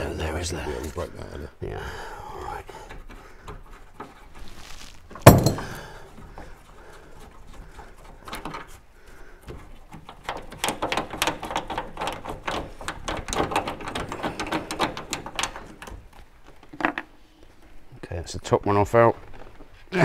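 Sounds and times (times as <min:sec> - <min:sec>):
loud knock: 0:05.2 - 0:05.8.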